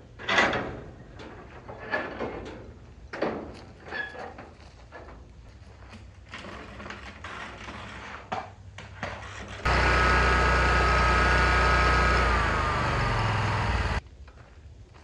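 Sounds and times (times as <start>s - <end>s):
mower engine running: 9.6s - 14.0s.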